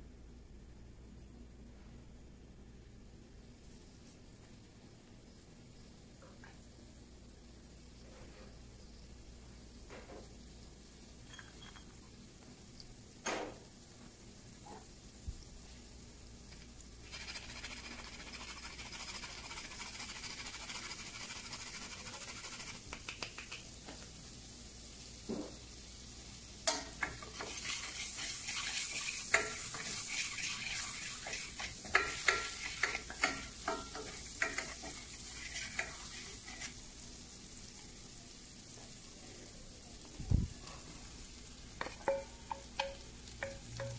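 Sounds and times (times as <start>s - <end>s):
vegetables sizzling in pan: 4.0s - 43.9s
utensil knocking against pan: 31.3s - 34.8s, 41.8s - 43.9s.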